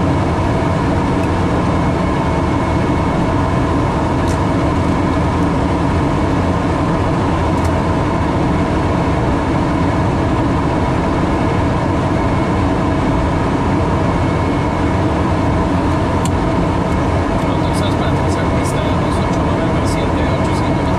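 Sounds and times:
faint steady tones: 8.0s - 20.9s
airliner cockpit rush: 10.7s - 20.9s.

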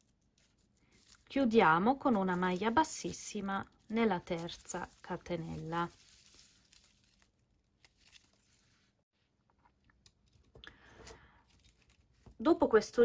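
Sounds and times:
faint rustles and soft clicks: 0.0s - 1.4s.

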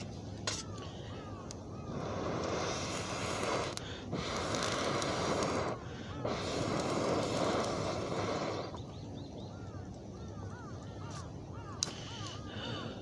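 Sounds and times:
small birds chirping: 0.0s - 13.0s
breath hissing through metal pipe: 1.8s - 8.8s.

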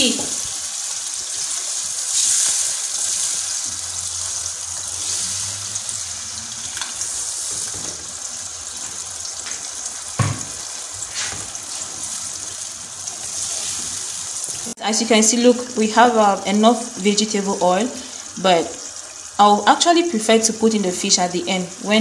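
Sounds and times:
sizzling and bubbling in pot: 0.0s - 22.0s
liquid pouring into hot oil: 0.7s - 11.8s
sharp knock: 10.2s - 10.6s.

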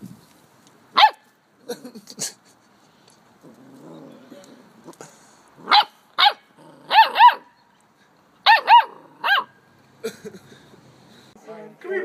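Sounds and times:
puppy barking: 1.0s - 1.2s, 5.6s - 7.6s, 8.4s - 9.6s.

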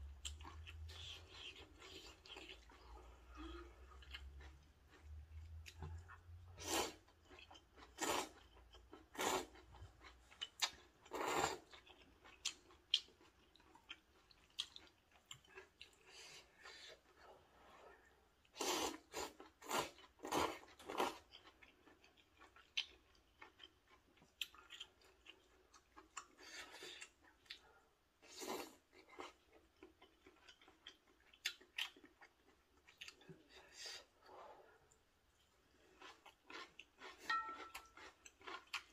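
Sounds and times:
person slurping noodles: 6.5s - 7.0s.

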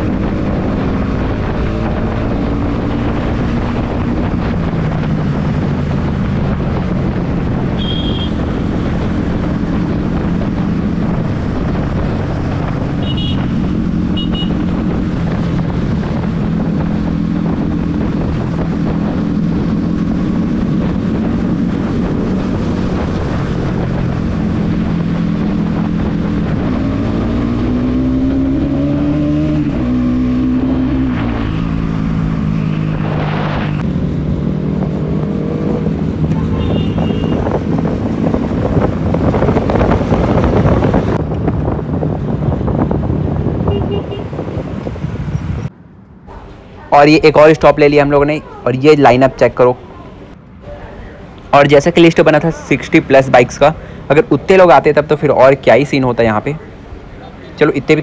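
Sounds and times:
wind noise on microphone: 0.0s - 45.9s
other motorcycles: 0.0s - 58.0s.

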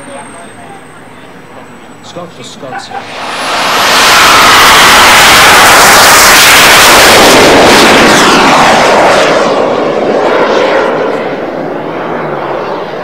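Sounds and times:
jet turbine engine whine: 0.0s - 13.0s.

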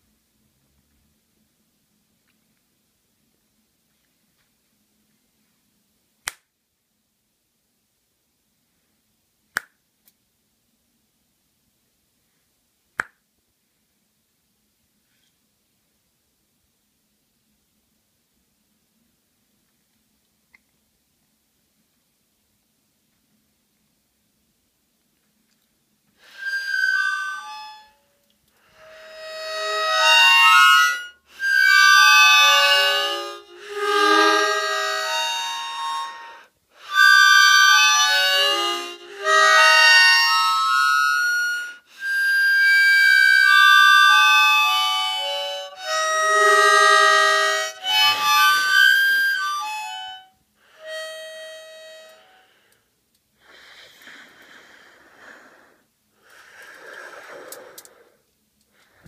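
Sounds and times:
harmonica chords: 26.2s - 54.6s
faint breathy sounds: 52.1s - 59.0s.

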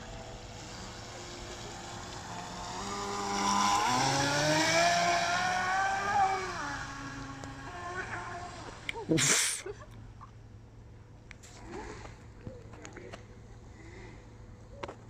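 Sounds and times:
electric boat motor whine: 0.0s - 8.9s
hiss of water spray: 9.1s - 9.6s.

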